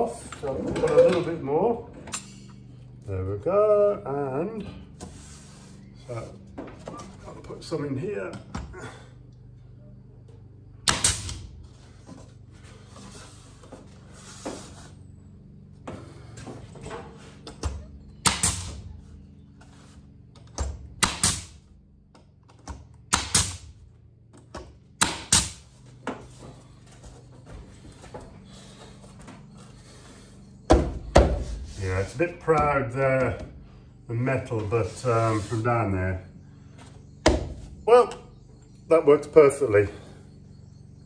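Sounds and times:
pneumatic nailer shots: 0:10.8 - 0:11.6, 0:17.6 - 0:18.9, 0:20.5 - 0:21.7, 0:23.0 - 0:23.8, 0:25.0 - 0:25.7.

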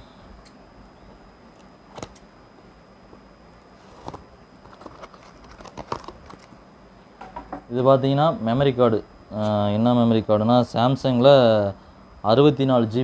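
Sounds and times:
paper crinkling: 0:03.8 - 0:06.6.

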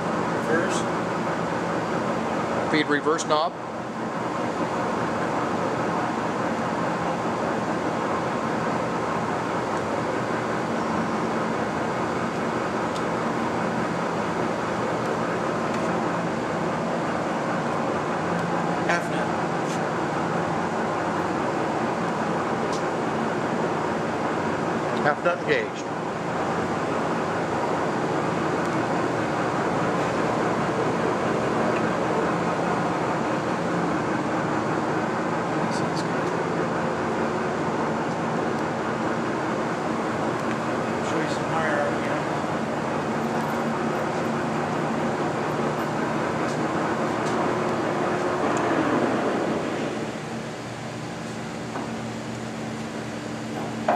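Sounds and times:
lathe motor humming: 0:25.8 - 0:53.9.

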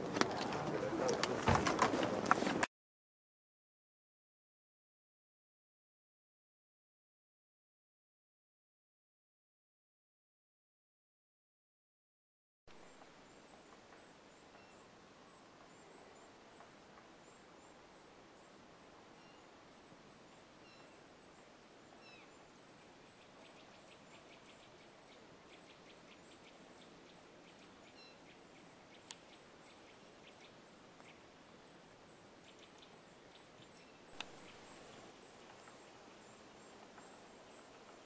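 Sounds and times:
faint background hiss: 0:12.7 - 0:38.0.

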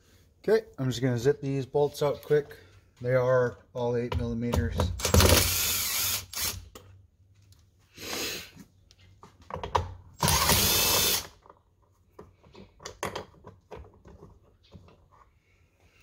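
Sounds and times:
cordless drill spinning: 0:05.0 - 0:06.7, 0:10.2 - 0:11.4.

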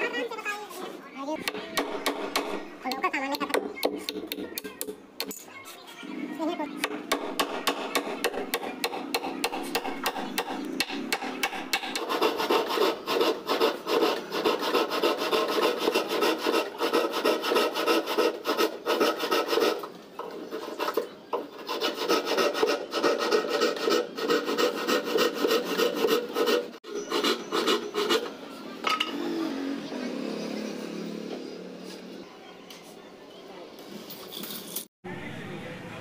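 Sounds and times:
hand sanding plywood: 0:07.5 - 0:19.8.

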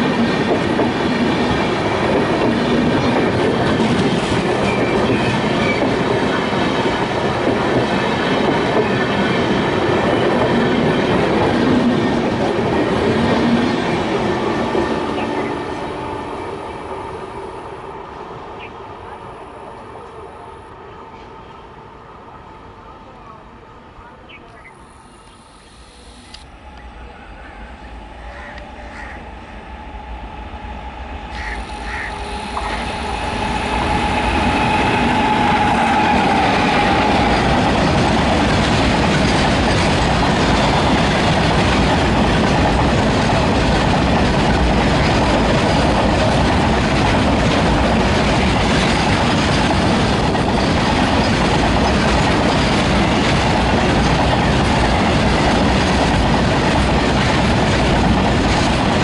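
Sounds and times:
steel wheels rolling on rails: 0:00.0 - 0:16.2, 0:31.8 - 0:59.0
freight train approaching: 0:00.0 - 0:59.0.

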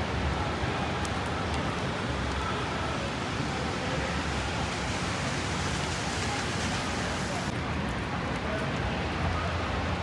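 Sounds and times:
traffic on wet pavement: 0:00.0 - 0:10.0
rain hissing: 0:01.2 - 0:07.6.

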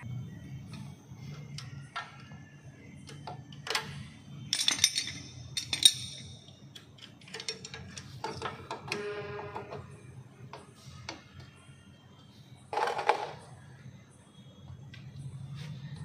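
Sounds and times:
metal tools clinking: 0:04.5 - 0:08.5.

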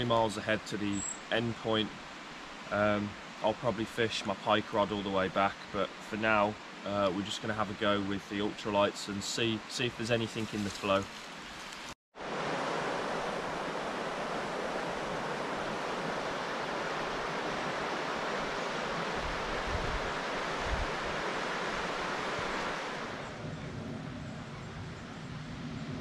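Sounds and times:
river water rushing: 0:01.9 - 0:03.6, 0:10.3 - 0:23.4
wind bumps on microphone: 0:12.4 - 0:26.0.

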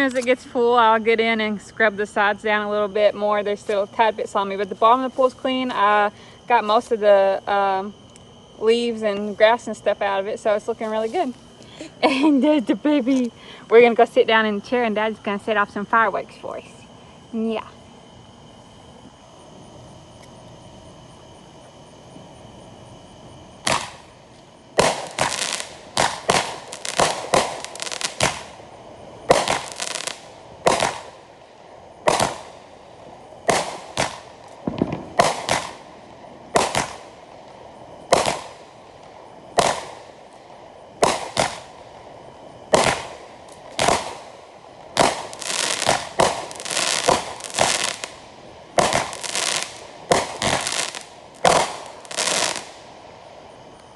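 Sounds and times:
fireworks banging: 0:23.6 - 0:31.4, 0:32.0 - 0:40.4, 0:41.0 - 0:41.9, 0:42.7 - 0:52.9.

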